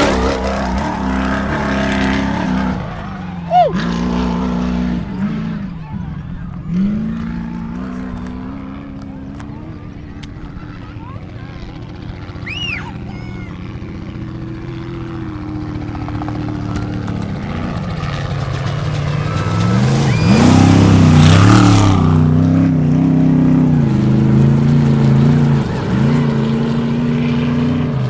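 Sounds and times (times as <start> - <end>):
truck engine at full throttle: 0.0 - 28.0
rush of dirt and wind: 13.6 - 28.0.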